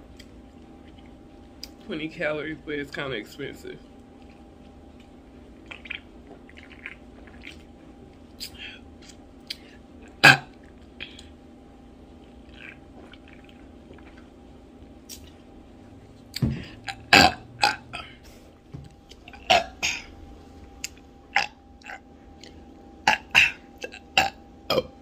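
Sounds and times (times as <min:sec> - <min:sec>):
woman burping: 0:16.5 - 0:18.2, 0:19.3 - 0:20.1, 0:21.3 - 0:22.0, 0:23.0 - 0:25.0.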